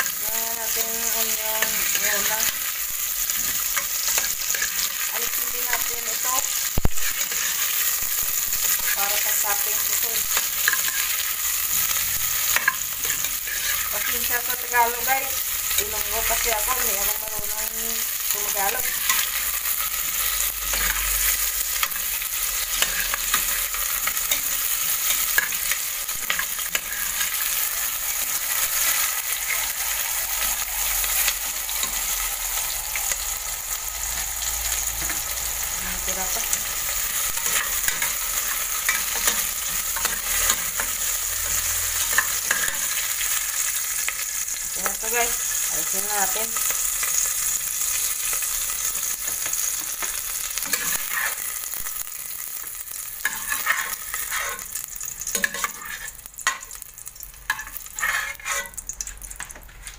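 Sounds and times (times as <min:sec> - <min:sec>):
onions sizzling in a pot: 0:00.0 - 0:59.9
metal spoon scraping a pot: 0:12.4 - 0:14.1, 0:53.3 - 0:54.7, 0:55.3 - 0:56.2, 0:57.5 - 0:58.8.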